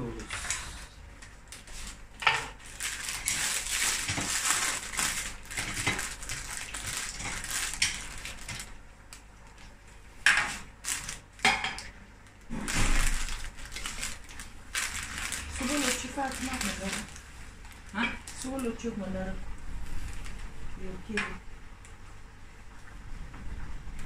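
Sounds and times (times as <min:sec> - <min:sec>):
plastic bag crinkling: 0:01.5 - 0:08.8, 0:10.5 - 0:19.0, 0:19.8 - 0:20.5.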